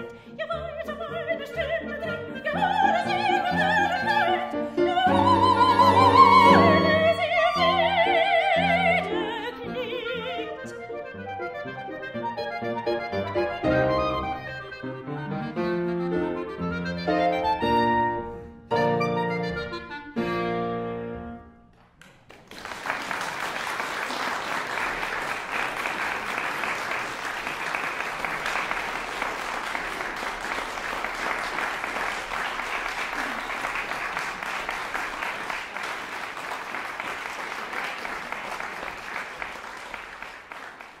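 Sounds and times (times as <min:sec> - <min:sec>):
audience applause: 0:21.8 - 0:41.0.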